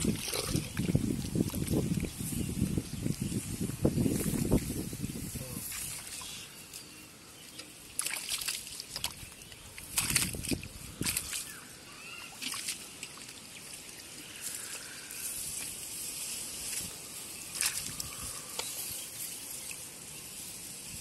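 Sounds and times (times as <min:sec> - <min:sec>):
sharp water splashes: 0:00.0 - 0:02.2, 0:07.6 - 0:14.1, 0:17.5 - 0:18.8
muddy water trickling and sloshing: 0:00.0 - 0:20.5.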